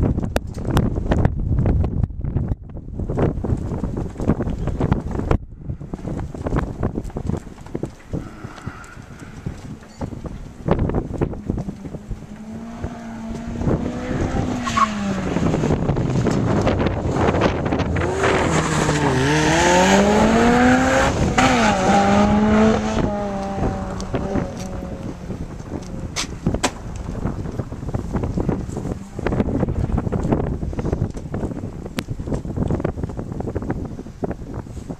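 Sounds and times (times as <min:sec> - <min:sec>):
wind buffeting microphone: 0:00.0 - 0:34.9
sports car engine revving: 0:10.6 - 0:26.2.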